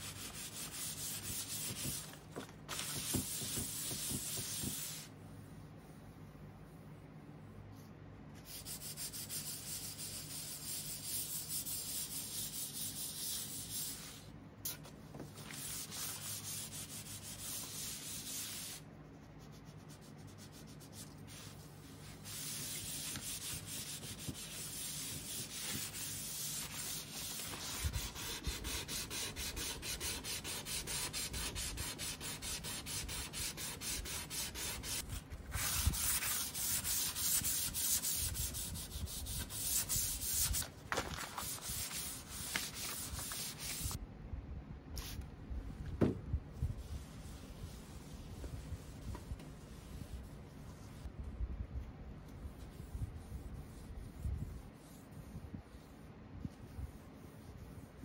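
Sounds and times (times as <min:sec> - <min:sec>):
sandpaper rubbing on wood: 0:19.8 - 0:35.0, 0:35.6 - 0:40.6.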